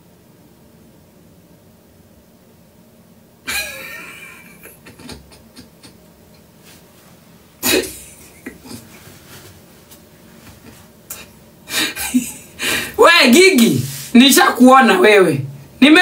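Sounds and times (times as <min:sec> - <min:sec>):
woman laughing: 0:03.5 - 0:06.1, 0:07.6 - 0:09.1, 0:10.6 - 0:13.0.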